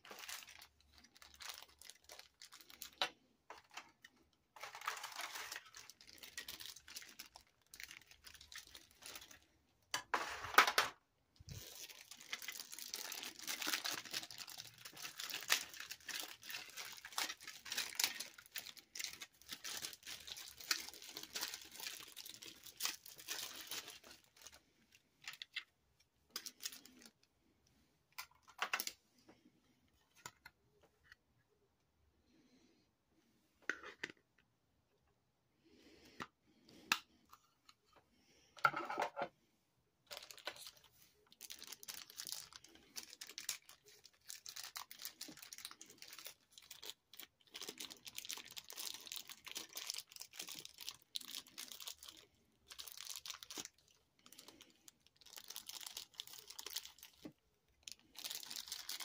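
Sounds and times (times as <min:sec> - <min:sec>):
plastic packaging crinkling: 0:00.0 - 0:09.5, 0:11.5 - 0:25.7, 0:26.3 - 0:27.3, 0:40.1 - 0:59.0.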